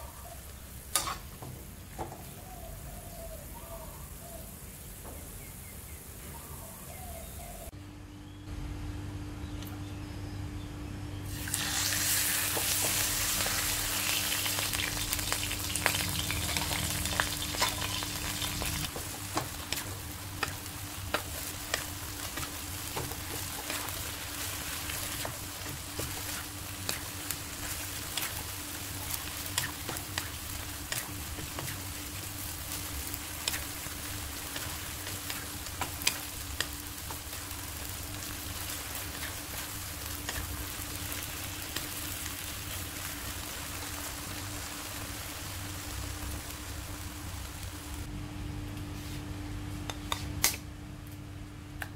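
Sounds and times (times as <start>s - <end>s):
meat sizzling in a wok: 11.3s - 48.1s.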